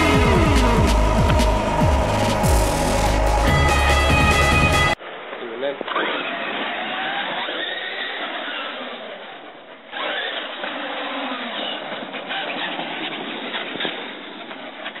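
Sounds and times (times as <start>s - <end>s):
electric motor whine: 0.0s - 5.0s.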